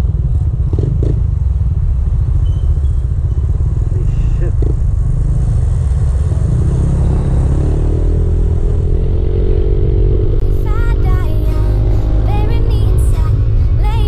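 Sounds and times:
motorcycle engine accelerating: 0.0s - 14.0s
music with singing voice: 10.4s - 14.0s.

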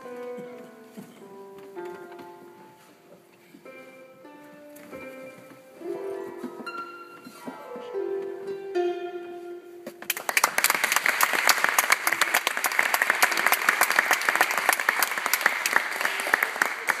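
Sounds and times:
harp notes ringing: 3.8s - 9.9s
applause: 10.0s - 17.0s.

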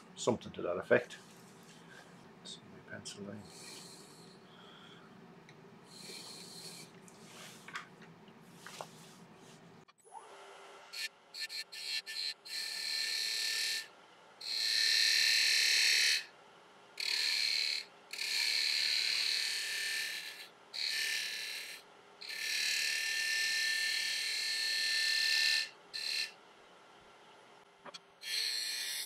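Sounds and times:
lathe tool shaving wood: 17.0s - 26.3s.

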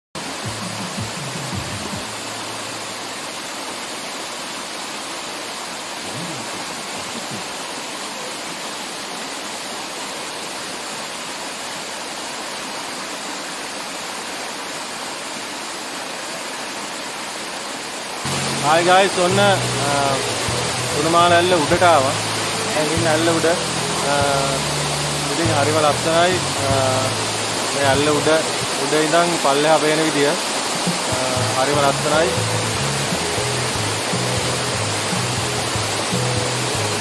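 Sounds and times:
waterfall rushing: 0.2s - 37.0s.

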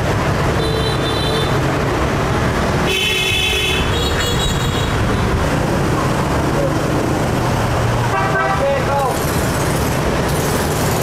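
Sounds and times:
street traffic rumble: 0.0s - 11.0s
vehicle horn toots: 2.9s - 4.9s, 8.1s - 8.7s.

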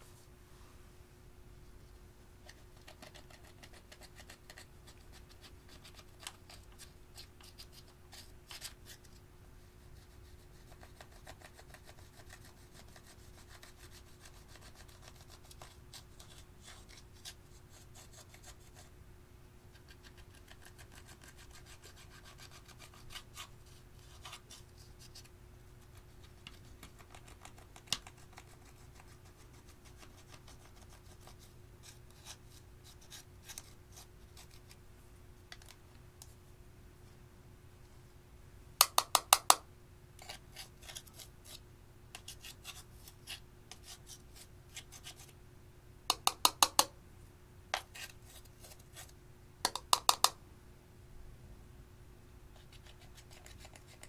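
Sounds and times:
scissors scratching eyeshadow powder: 2.4s - 9.2s, 9.9s - 18.9s, 19.7s - 34.8s, 40.2s - 45.4s, 47.8s - 50.4s, 52.6s - 54.0s.

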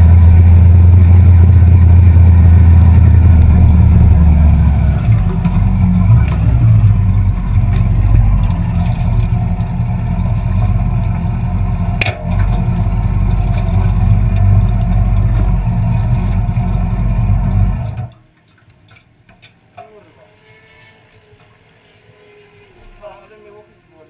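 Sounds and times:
motorcycle engine running at low revs: 0.0s - 18.1s.

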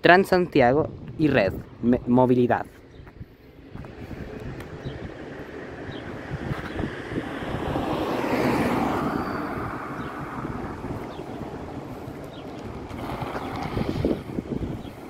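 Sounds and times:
bus diesel engine approaching: 3.5s - 15.0s
car passing by: 3.7s - 14.6s.

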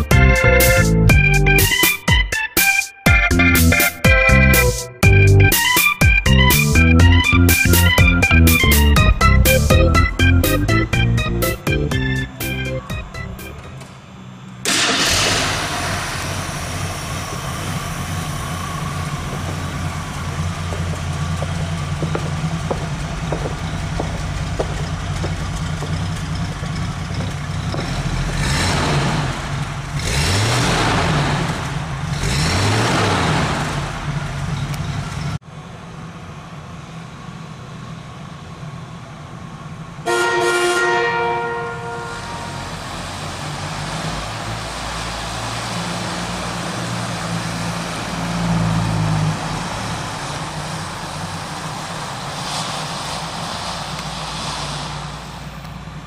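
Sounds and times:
car engine idling and revving: 0.0s - 1.9s, 3.6s - 56.0s
car horn toot: 40.0s - 42.8s.

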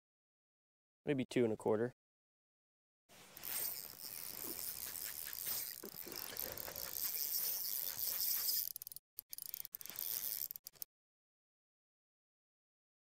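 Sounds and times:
fishing reel whirring: 3.3s - 10.9s.

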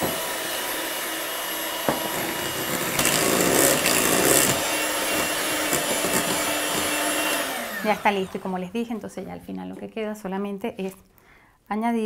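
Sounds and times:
electric hand mixer whirring: 0.0s - 9.3s.

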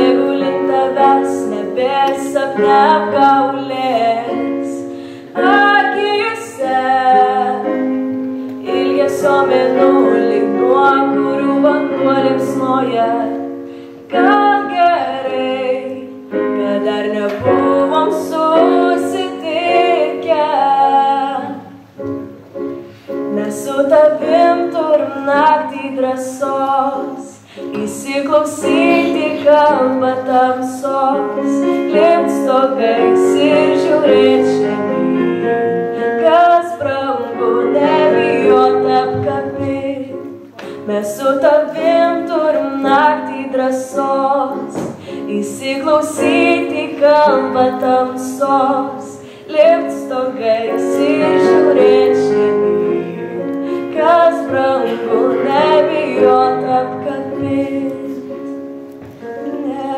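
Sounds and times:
young woman singing: 0.0s - 21.9s, 23.2s - 59.9s
instrumental accompaniment: 0.0s - 59.9s
singer breathing: 4.9s - 5.3s, 13.6s - 14.1s, 22.8s - 23.2s, 27.4s - 27.7s, 45.0s - 45.3s, 49.2s - 49.5s.

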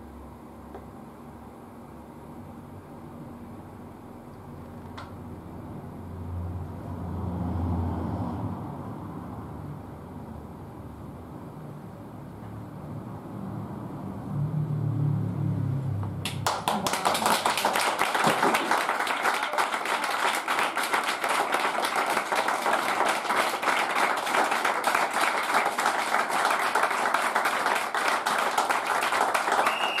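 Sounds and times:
audience applause: 16.2s - 30.0s.

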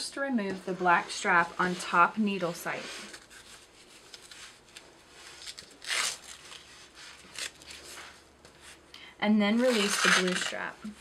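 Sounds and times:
velcro rasp: 3.0s - 8.2s, 9.6s - 11.0s
velcro strap rustling: 3.0s - 8.2s, 9.6s - 11.0s.

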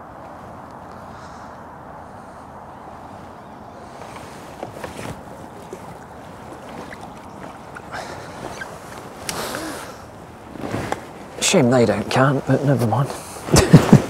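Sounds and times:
fish splashing in water: 3.8s - 10.2s.

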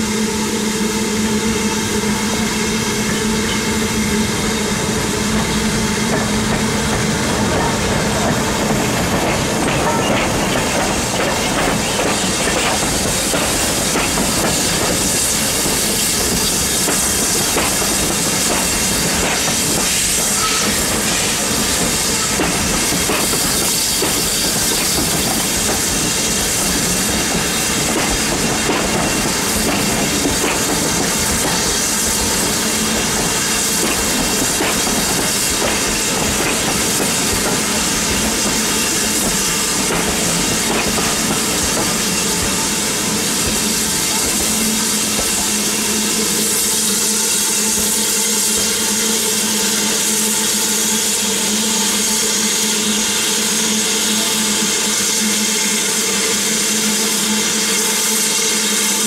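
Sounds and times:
steam hissing: 0.0s - 59.0s
wheels clicking over rail joints: 7.5s - 21.2s.

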